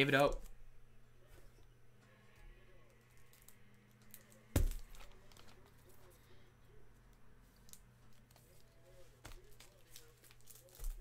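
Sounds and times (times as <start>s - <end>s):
trading cards clicking and rustling: 7.1s - 11.0s.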